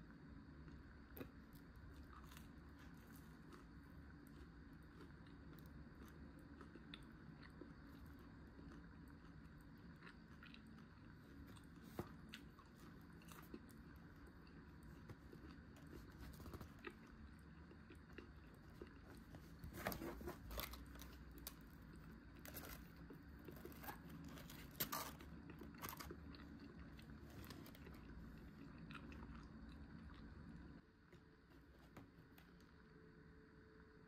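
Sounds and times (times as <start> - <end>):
person chewing crunchy fried shrimp: 0.9 - 19.7, 20.4 - 30.8.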